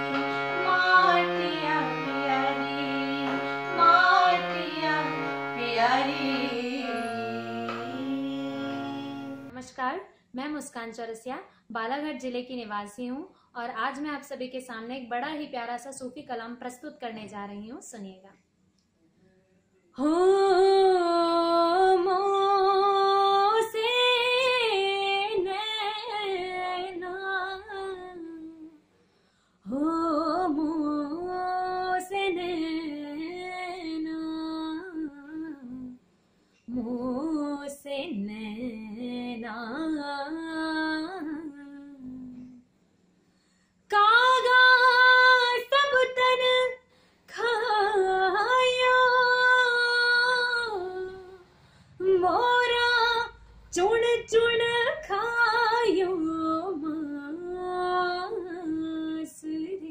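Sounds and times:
woman singing solo: 0.0s - 9.5s.

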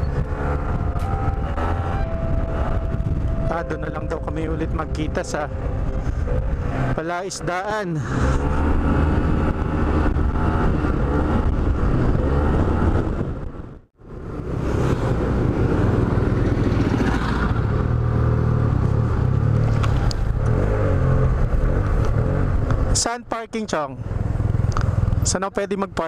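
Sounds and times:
wind noise on microphone: 0.0s - 7.0s, 8.1s - 18.0s.

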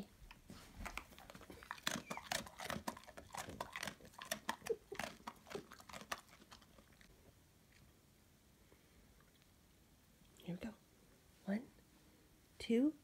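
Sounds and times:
dog crunching a treat: 0.3s - 7.1s.

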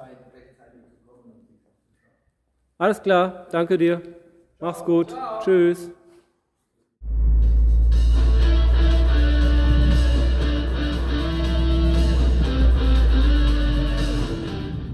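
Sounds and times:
deep steady bass line: 7.0s - 14.9s
guitar-led background music: 8.2s - 14.9s.

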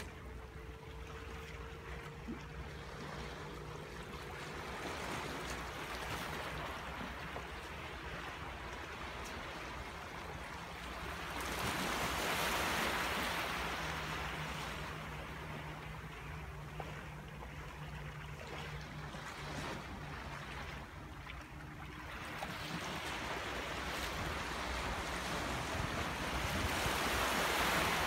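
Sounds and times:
rough sea waves surging: 0.0s - 18.8s, 19.4s - 28.0s.

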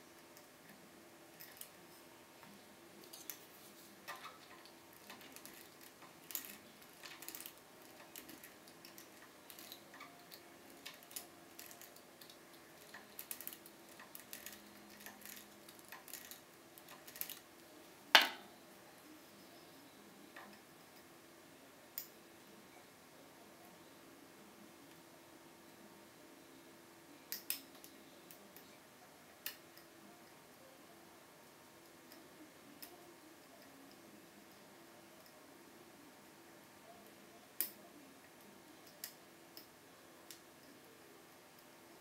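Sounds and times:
lock picks clicking and scraping: 4.1s - 17.4s.

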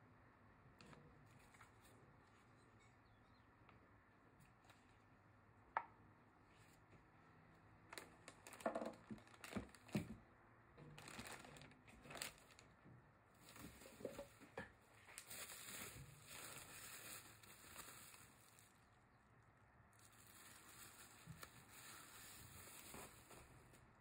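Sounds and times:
bubble wrap and plastic crinkling: 7.8s - 10.2s, 10.8s - 19.2s, 19.9s - 24.0s.

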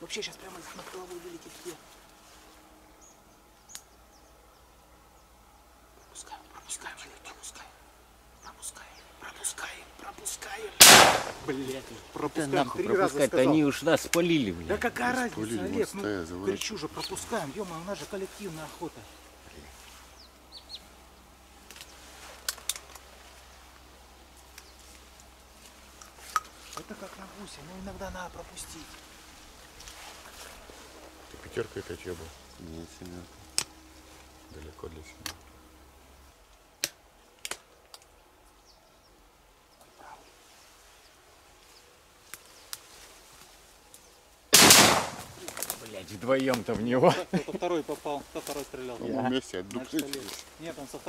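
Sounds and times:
quiet rural background: 0.0s - 51.0s
shotgun metallic clicks: 10.8s - 11.4s
sharp clicks and snaps: 21.7s - 23.0s, 33.5s - 33.8s, 35.2s - 35.4s, 36.8s - 38.1s.

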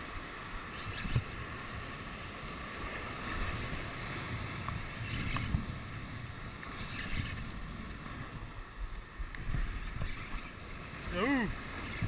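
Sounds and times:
surf washing over rocks: 0.0s - 12.0s
wind buffeting microphone: 2.7s - 12.0s.

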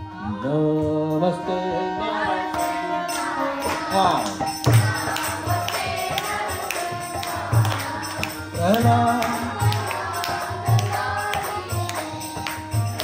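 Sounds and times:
harmonium tones: 0.0s - 13.0s
clapping: 4.7s - 13.0s.

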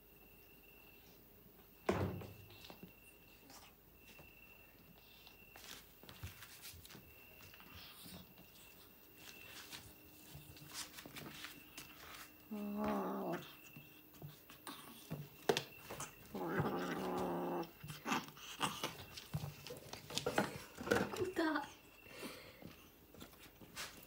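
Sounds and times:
kitten growling: 16.3s - 18.8s.

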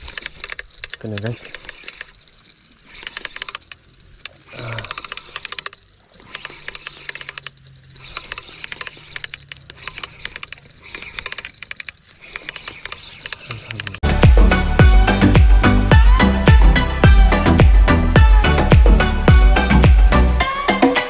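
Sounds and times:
fishing reel clicking: 0.0s - 14.0s
music: 14.0s - 21.0s.

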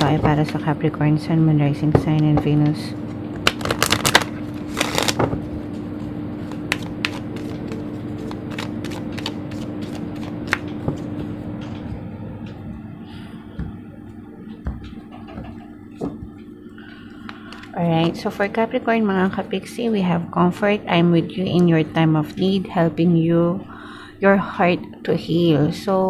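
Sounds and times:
steady low hum: 0.0s - 26.0s
cards shuffling: 3.4s - 5.3s, 6.4s - 11.1s
cards flicking and sliding: 6.5s - 10.8s.

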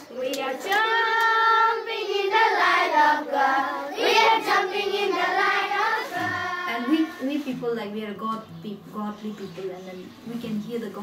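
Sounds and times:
children singing together: 0.0s - 7.2s.

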